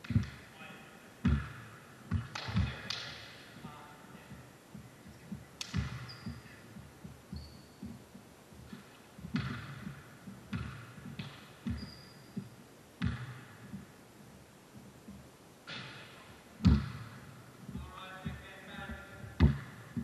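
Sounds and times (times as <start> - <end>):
footsteps thudding: 1.2 - 2.8, 4.3 - 20.0
basketball bouncing: 1.2 - 3.1, 5.6 - 8.0, 8.6 - 13.9, 16.6 - 20.0
sneaker squeaks: 5.1 - 13.8.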